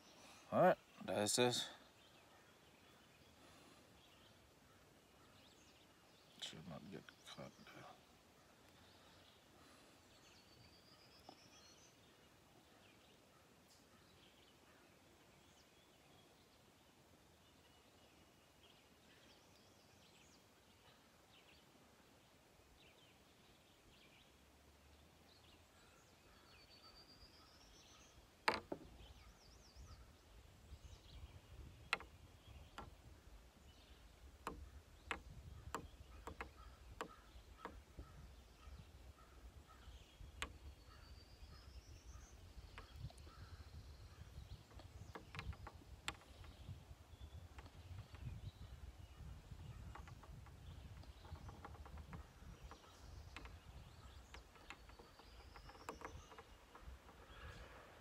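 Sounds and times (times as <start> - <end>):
faint bird calls: 25.6 - 58.0.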